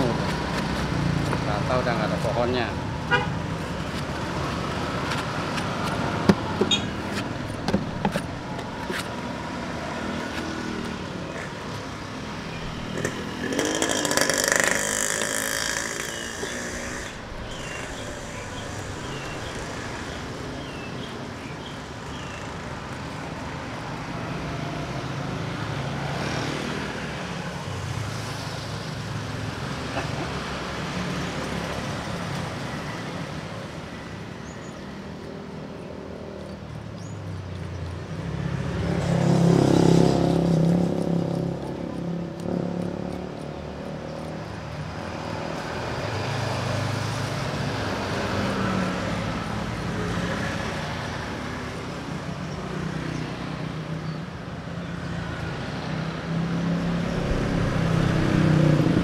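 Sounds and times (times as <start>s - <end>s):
street traffic: 0.0s - 59.0s
vehicle passing close: 6.0s - 22.8s, 55.6s - 59.0s.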